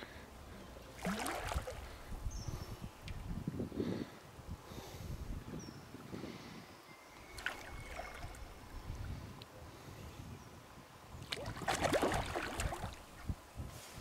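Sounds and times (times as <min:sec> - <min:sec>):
water splashing and sloshing: 0:00.8 - 0:02.2, 0:07.3 - 0:09.2, 0:11.2 - 0:13.4.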